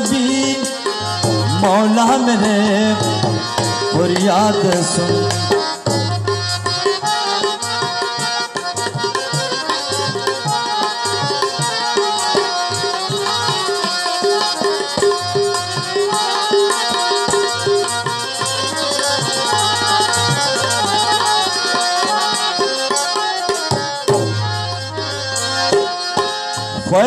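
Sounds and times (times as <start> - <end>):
held melody notes: 0.0 - 27.0
tabla drumming: 0.0 - 27.0.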